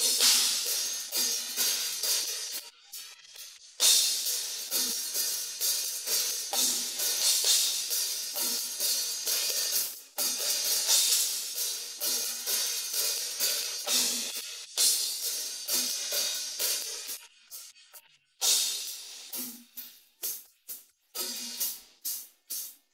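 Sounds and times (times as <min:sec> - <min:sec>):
crash cymbal hits: 0:00.0 - 0:02.6
cymbal strokes: 0:00.0 - 0:02.6, 0:03.4 - 0:17.7
faint drums: 0:00.0 - 0:22.9.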